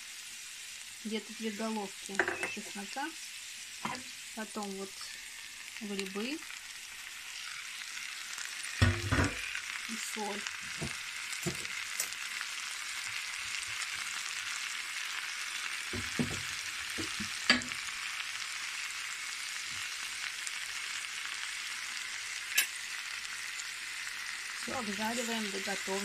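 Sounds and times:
food sizzling in oil: 0.0 - 26.0.

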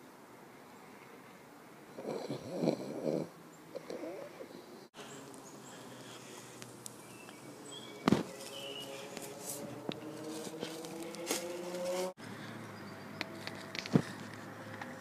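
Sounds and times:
footsteps on dry leaves: 5.0 - 12.2
bird chirps: 6.9 - 9.4, 12.4 - 13.5.

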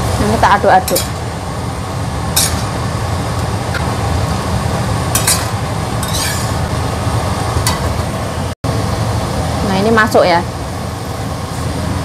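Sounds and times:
steady low hum: 0.0 - 12.0
metal ladle scraping wok: 5.2 - 6.7.

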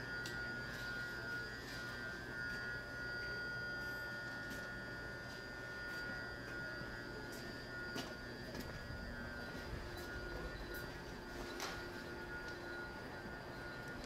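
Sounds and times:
electric train high-pitched whine: 0.0 - 14.0
train low rumble: 5.2 - 14.0.

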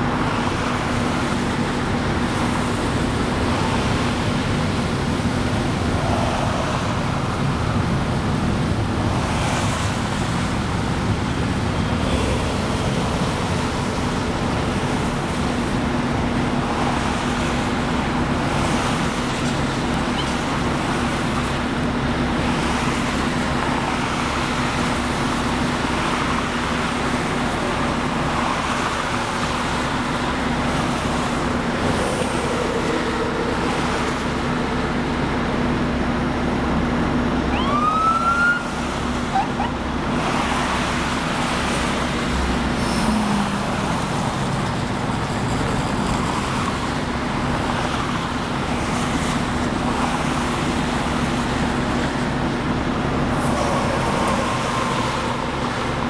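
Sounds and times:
highway traffic roar: 0.0 - 56.0
police siren whoop: 37.5 - 39.8.

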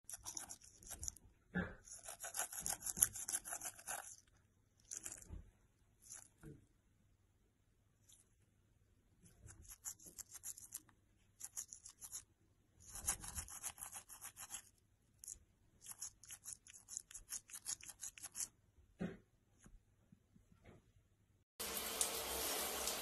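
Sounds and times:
toothbrush scrubbing teeth: 0.0 - 5.4, 6.0 - 6.4, 9.4 - 18.6.

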